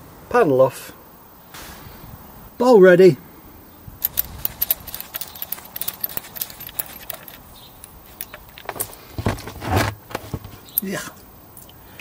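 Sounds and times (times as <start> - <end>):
spanner clicking on drain plug: 4.0 - 8.6.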